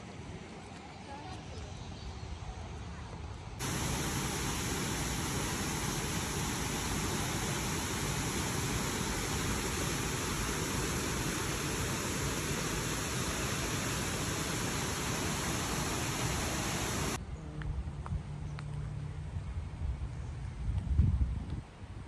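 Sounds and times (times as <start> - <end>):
steady rushing noise: 3.6 - 17.2
low hum: 3.6 - 17.6.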